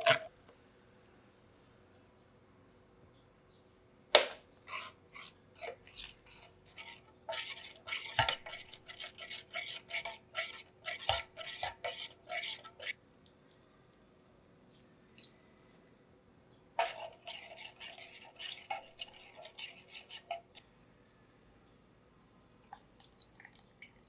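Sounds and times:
metal spoon scraping a skillet: 4.7s - 13.0s, 16.8s - 20.6s.

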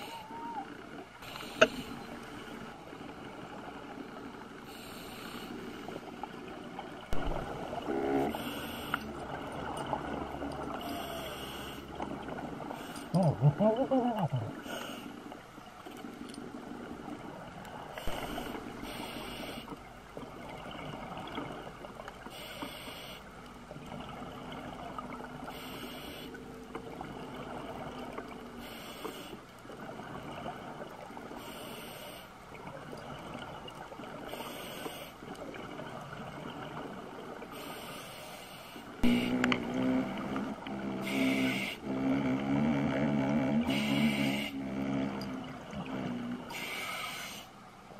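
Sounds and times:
underwater rumble: 0.0s - 22.6s, 38.9s - 46.7s
hissing regulator breath: 43.7s - 44.6s, 46.5s - 47.5s.

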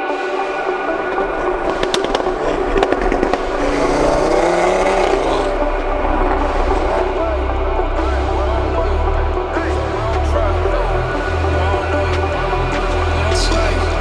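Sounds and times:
background music: 0.0s - 14.0s
car engine pulling: 0.4s - 8.7s.

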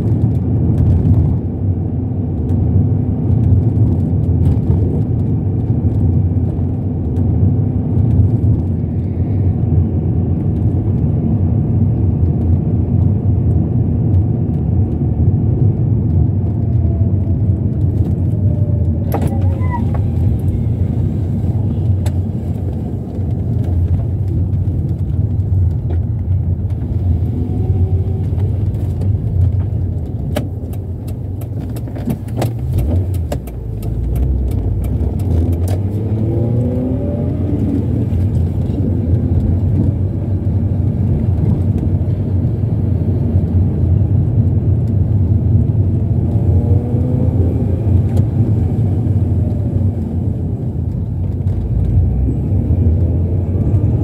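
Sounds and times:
car engine and road rumble: 0.0s - 54.0s
small clicks and rattles: 21.8s - 36.0s.

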